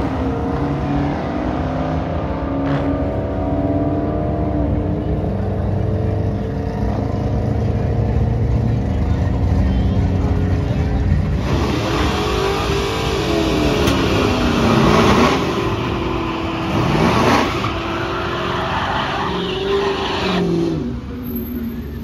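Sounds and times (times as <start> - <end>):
car engine revving hard: 11.4 - 20.9.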